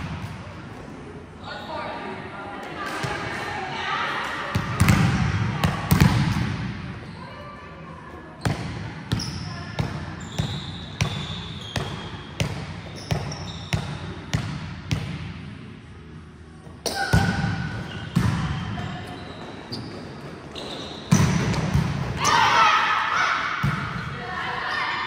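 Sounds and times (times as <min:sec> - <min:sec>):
volleyball bouncing on hard floor: 0:04.5 - 0:06.7, 0:21.1 - 0:22.1.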